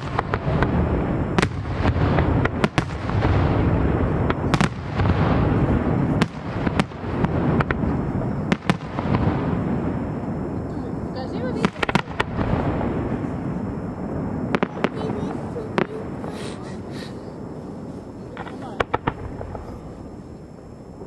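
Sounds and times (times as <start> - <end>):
low din of fireworks barrage: 0.0 - 21.0
firework shells bursting: 11.6 - 21.0.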